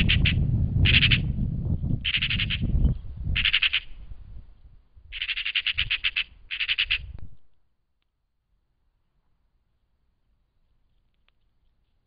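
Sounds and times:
magpie chattering: 0:00.0 - 0:01.3, 0:02.1 - 0:02.7, 0:03.4 - 0:04.0, 0:05.1 - 0:07.2.

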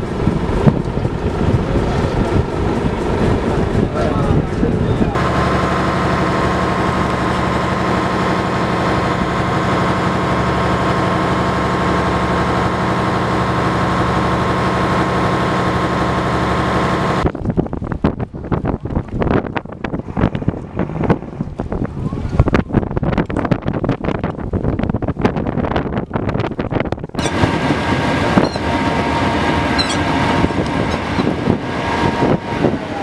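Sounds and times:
wind buffeting microphone: 0:00.0 - 0:15.4, 0:17.2 - 0:33.0
boat engine droning: 0:00.0 - 0:23.2, 0:27.0 - 0:33.0.

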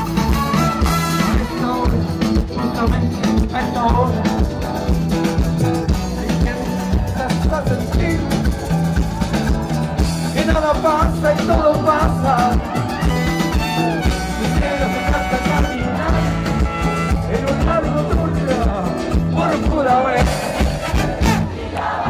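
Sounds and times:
trombone: 0:00.0 - 0:01.9, 0:13.0 - 0:17.6, 0:20.2 - 0:21.6
trumpet: 0:00.0 - 0:01.9, 0:12.9 - 0:17.5, 0:20.2 - 0:21.7
drum kit: 0:00.0 - 0:21.6
bass: 0:00.0 - 0:22.0
guitars: 0:00.0 - 0:22.0.

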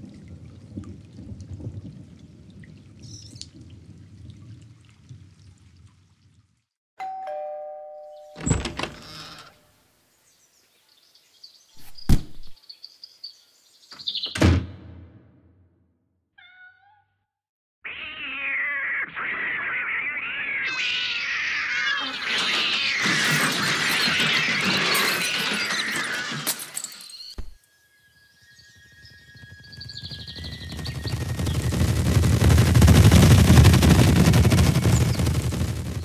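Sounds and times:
ding-dong doorbell chime: 0:07.0 - 0:08.5
tiny squeaks: 0:08.4 - 0:09.6, 0:17.9 - 0:27.6.

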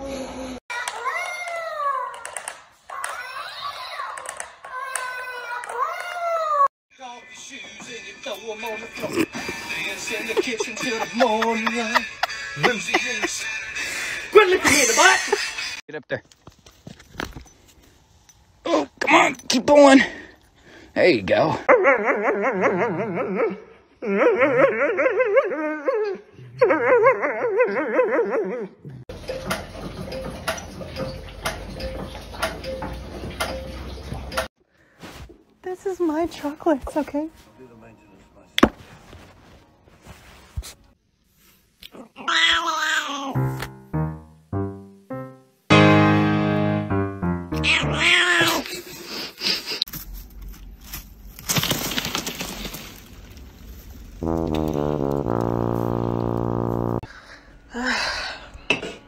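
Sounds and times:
cat meowing: 0:47.6 - 0:48.6.

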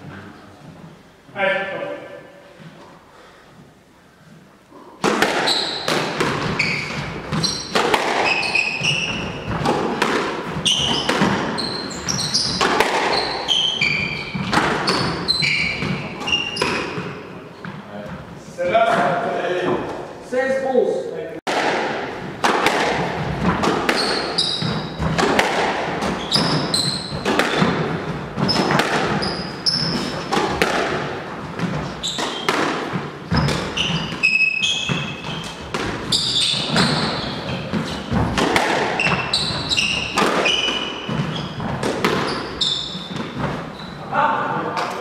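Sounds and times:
ball smacking off walls: 0:05.0 - 0:13.3, 0:14.3 - 0:16.0, 0:21.5 - 0:34.2, 0:35.7 - 0:42.4
squash ball struck by rackets: 0:05.0 - 0:17.2, 0:21.5 - 0:43.7
shoes squeaking on wooden floor: 0:05.2 - 0:20.1, 0:22.0 - 0:44.3.

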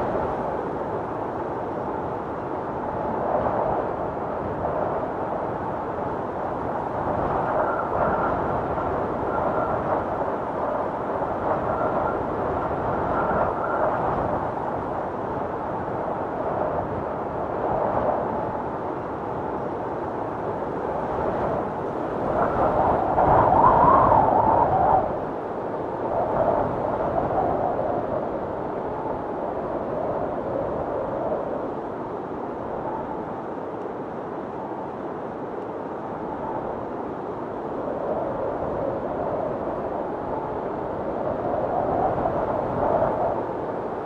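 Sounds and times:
howling blizzard wind: 0:00.0 - 0:44.0
thin wind whistle: 0:07.1 - 0:14.4, 0:22.2 - 0:25.3.

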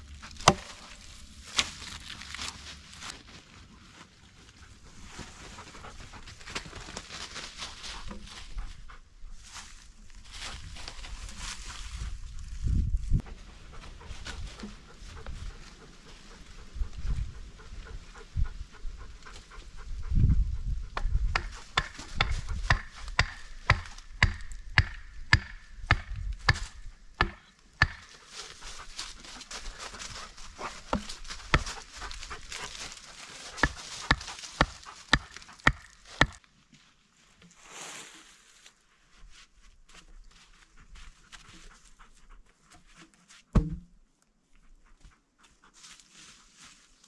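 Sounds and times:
sharp knocks and strikes: 0:00.4 - 0:00.8, 0:21.0 - 0:28.2, 0:43.5 - 0:43.9
heavy thump: 0:43.5 - 0:43.9.

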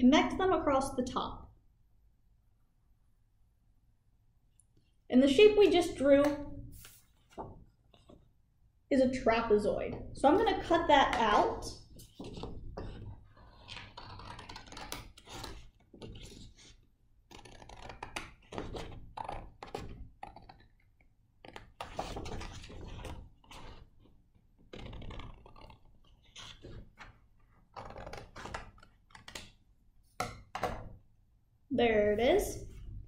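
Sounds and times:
paper rustling: 0:06.7 - 0:08.3.

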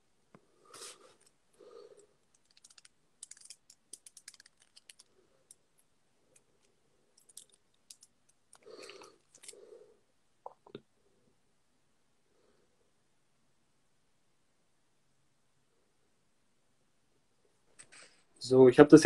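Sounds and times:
faint typing clicks: 0:02.3 - 0:05.6.

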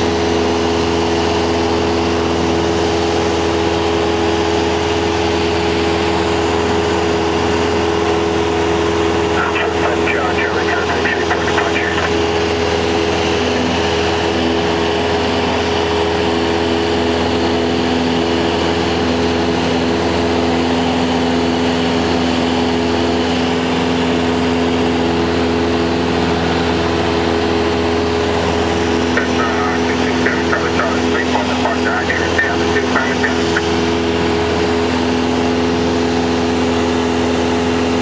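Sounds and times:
propeller aircraft engine droning: 0:00.0 - 0:38.0.

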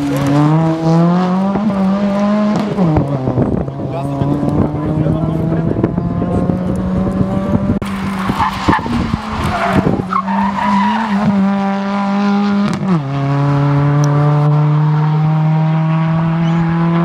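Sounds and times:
rough noise and clicks: 0:00.0 - 0:03.6
rally car engine accelerating: 0:00.0 - 0:17.0.

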